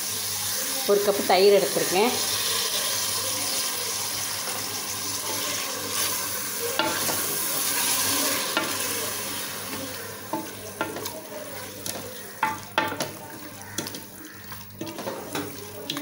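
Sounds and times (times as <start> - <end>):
masala sizzling in hot oil: 0.0 - 16.0
metal spatula knocking pot: 10.3 - 11.1, 11.8 - 14.1.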